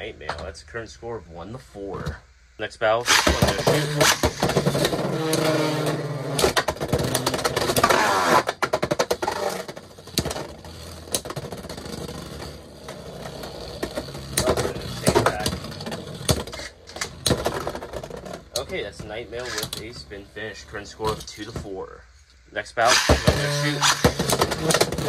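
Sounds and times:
spinning tops whirring: 0:03.0 - 0:21.3, 0:22.8 - 0:25.0
plastic tops clicking and scraping: 0:03.1 - 0:20.0, 0:22.9 - 0:25.0.

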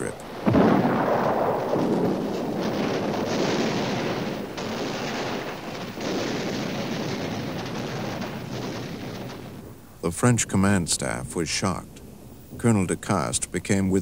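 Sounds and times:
artillery shell blasts: 0:00.0 - 0:11.3
continuous gunfire: 0:00.4 - 0:09.6.

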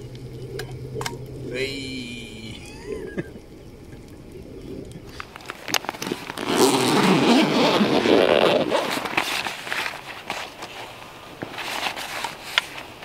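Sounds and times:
fabric bag rustling and scraping: 0:05.8 - 0:13.0
zip being worked: 0:06.0 - 0:09.1.

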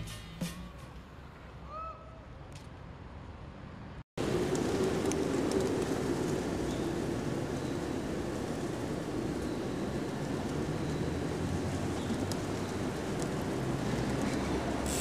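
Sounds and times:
steady rushing noise: 0:04.2 - 0:15.0.

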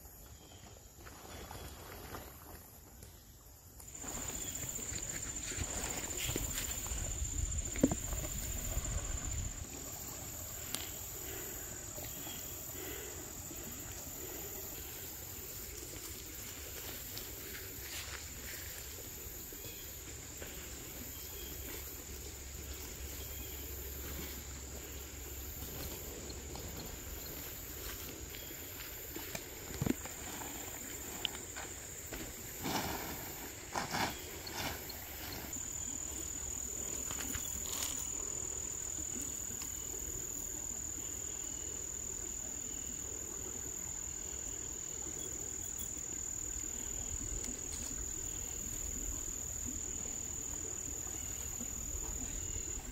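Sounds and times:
crickets trilling: 0:03.8 - 0:52.9
tent fabric rustling: 0:30.1 - 0:35.6.

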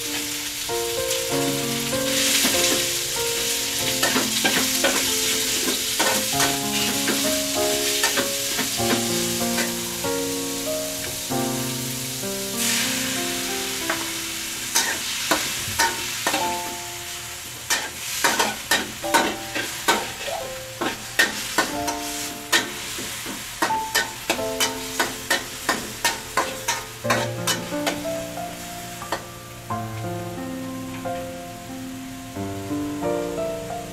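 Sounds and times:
background music: 0:00.0 - 0:14.6
meat sizzling: 0:00.0 - 0:33.9
metal spatula scraping a wok: 0:14.7 - 0:16.4, 0:17.7 - 0:28.0.

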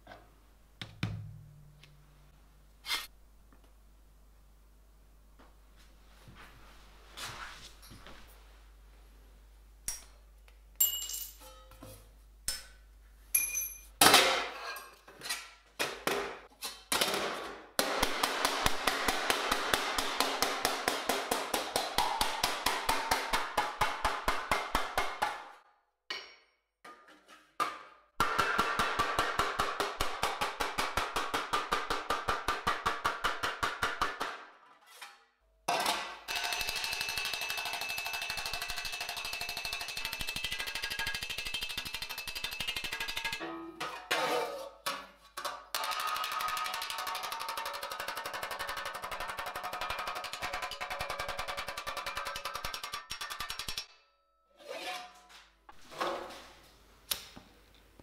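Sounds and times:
hammer striking steel sheet: 0:17.8 - 0:25.5, 0:35.7 - 0:43.8.

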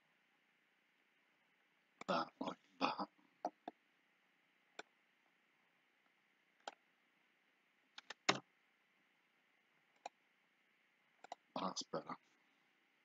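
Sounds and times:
keyboard and mouse clicks: 0:03.4 - 0:03.8, 0:06.6 - 0:06.8, 0:08.0 - 0:08.4, 0:10.0 - 0:10.2, 0:11.2 - 0:11.5.

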